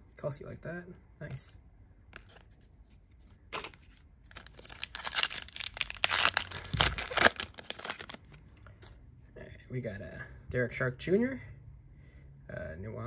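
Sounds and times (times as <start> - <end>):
wrapper crinkling and tearing: 3.6 - 8.4
wrapper ripping: 3.6 - 8.4.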